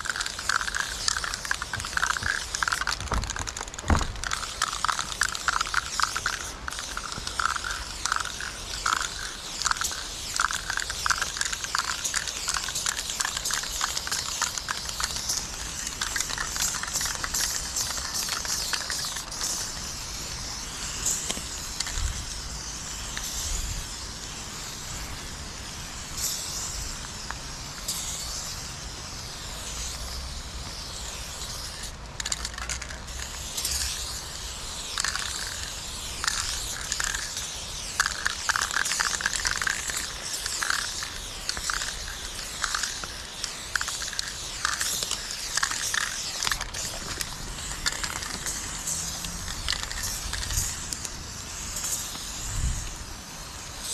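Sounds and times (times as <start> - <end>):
spray paint can hissing: 0.0 - 53.9.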